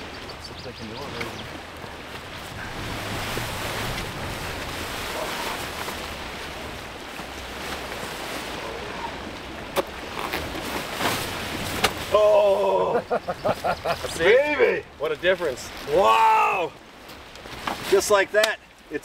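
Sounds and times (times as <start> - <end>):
wind rushing: 2.4 - 6.4
canvas tent pulled open: 8.5 - 16.7
tent fabric snapping: 9.8 - 12.0.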